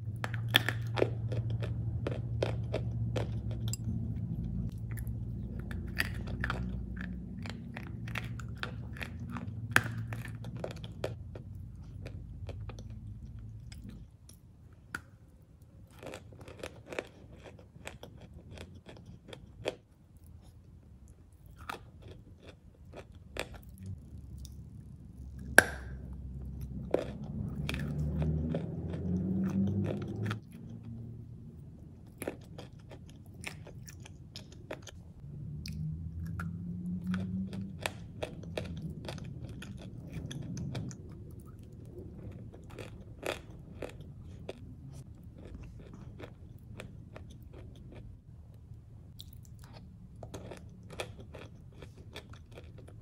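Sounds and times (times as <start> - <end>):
wet chewing: 0.1 - 14.5, 21.4 - 48.2.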